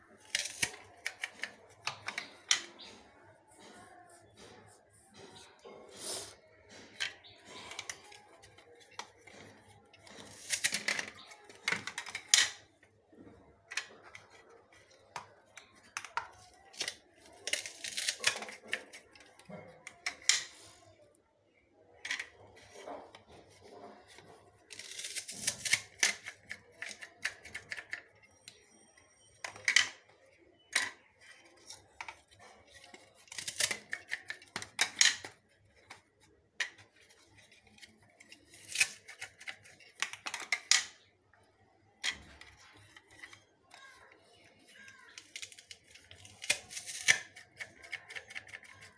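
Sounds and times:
knife cutting onions: 0:38.5 - 0:39.6.

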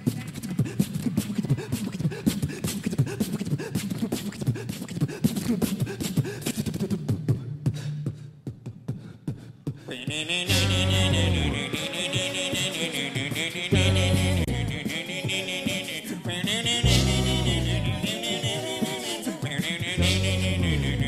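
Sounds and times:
person beatboxing into microphone: 0:00.0 - 0:21.0
low voiced tones: 0:10.4 - 0:15.9, 0:16.6 - 0:21.0.

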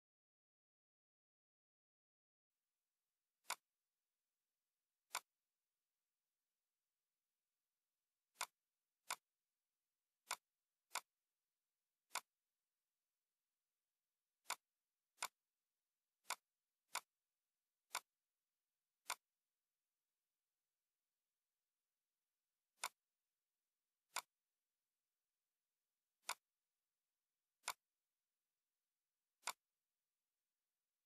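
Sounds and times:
computer mouse clicks: 0:05.1 - 0:05.3, 0:08.3 - 0:09.3, 0:10.2 - 0:11.1, 0:12.1 - 0:12.3, 0:22.8 - 0:23.0, 0:26.2 - 0:26.5, 0:27.6 - 0:27.8, 0:29.4 - 0:29.7.

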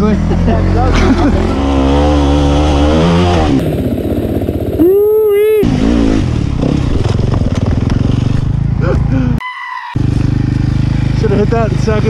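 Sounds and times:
dirt bike engine revving: 0:00.0 - 0:09.1, 0:10.0 - 0:12.0.

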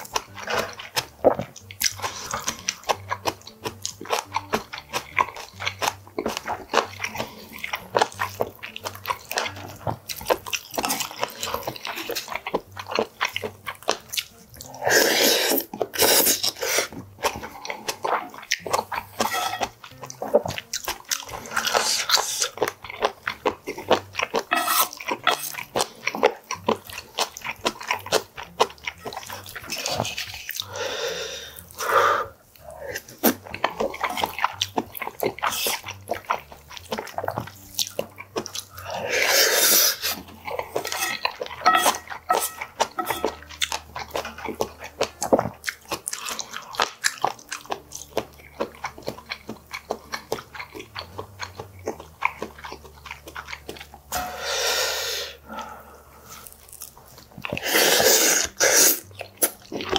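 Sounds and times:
chewing and mouth smacking: 0:00.0 - 0:54.1, 0:55.5 - 0:59.9
wooden spoon scraping brass bowls: 0:19.1 - 0:19.8, 0:24.5 - 0:25.5, 0:39.6 - 0:43.6.

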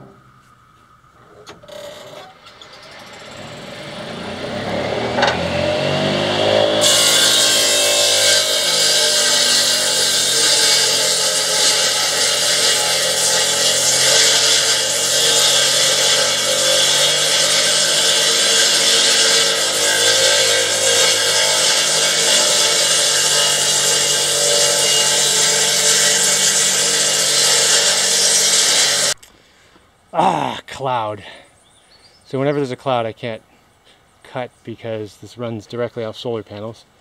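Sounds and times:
sawmill motor hum: 0:01.4 - 0:29.2
saw cutting wood hissing: 0:01.7 - 0:29.2.

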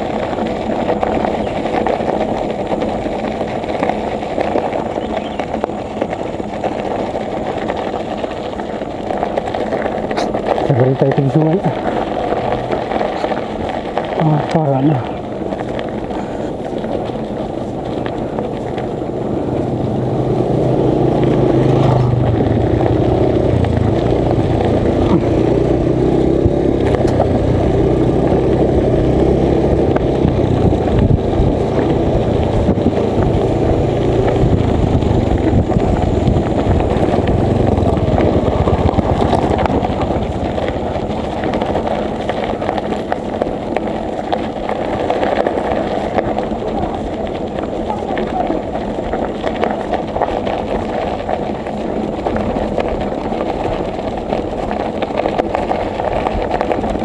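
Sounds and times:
rumbling of riding on a road: 0:00.0 - 0:57.0.

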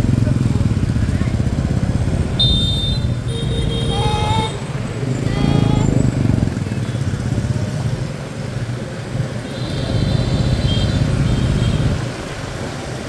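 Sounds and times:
motor vehicle engines running: 0:00.0 - 0:13.0
vehicle passing: 0:03.8 - 0:13.0.

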